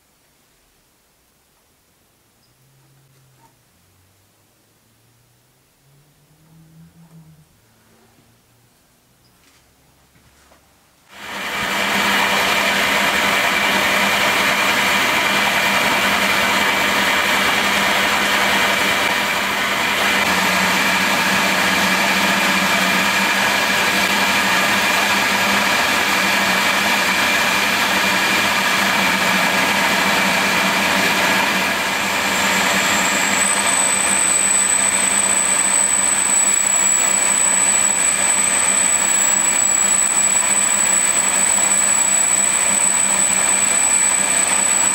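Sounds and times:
drill cutting into brass: 0:11.1 - 0:44.9
milling machine running: 0:11.1 - 0:44.9
thin high whine: 0:11.1 - 0:44.9.

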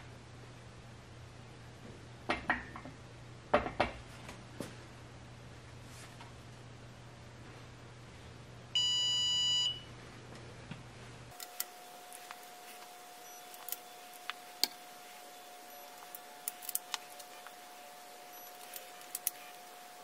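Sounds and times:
electronic beep from wrench: 0:08.8 - 0:09.9.

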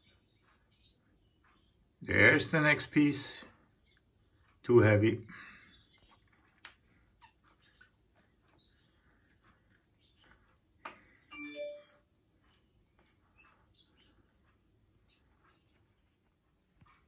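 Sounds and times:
soft clicks and rustles: 0:05.8 - 0:11.3, 0:12.0 - 0:17.0
lovebird chirps: 0:11.3 - 0:12.0.

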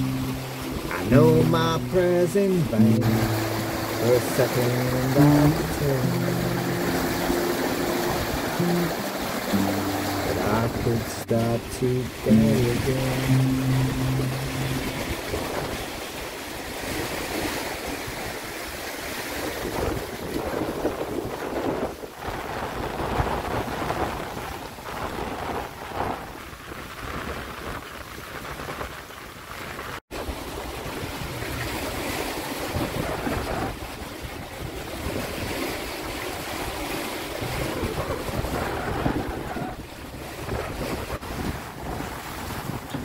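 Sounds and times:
water splashing along hull: 0:00.0 - 0:43.0
wind buffeting microphone: 0:13.2 - 0:43.0.

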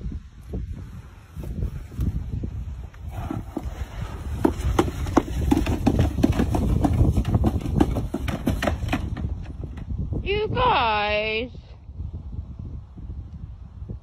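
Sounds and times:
plastic sled scraping and clattering: 0:02.9 - 0:09.9.

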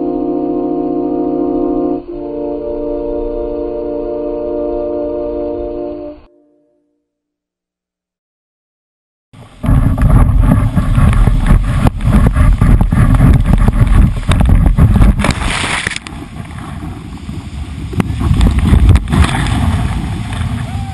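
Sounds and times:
wind buffeting microphone: 0:09.4 - 0:20.9.

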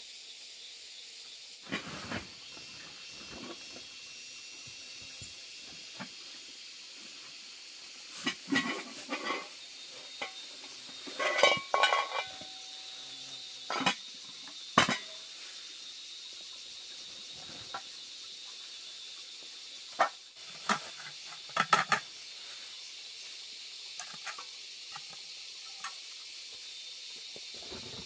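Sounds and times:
steady high hiss: 0:00.0 - 0:28.0
pot and lid clinking: 0:08.2 - 0:09.6, 0:10.2 - 0:12.8, 0:13.7 - 0:14.0, 0:14.8 - 0:15.2.

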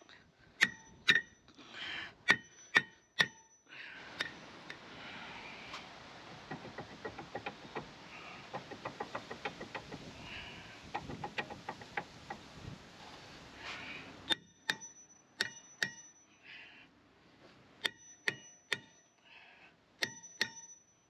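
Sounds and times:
hammer striking metal disc: 0:00.6 - 0:01.4, 0:02.3 - 0:03.5, 0:04.2 - 0:04.5, 0:14.3 - 0:16.2, 0:17.8 - 0:19.0, 0:20.0 - 0:20.9
metal clicks and rattles: 0:06.3 - 0:10.1, 0:10.9 - 0:12.6.

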